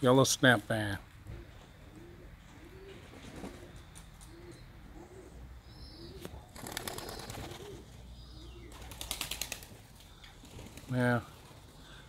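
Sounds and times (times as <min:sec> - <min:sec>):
pigeons cooing: 0:01.2 - 0:12.0
pigeon wingbeats clattering: 0:06.6 - 0:07.8, 0:08.7 - 0:11.6.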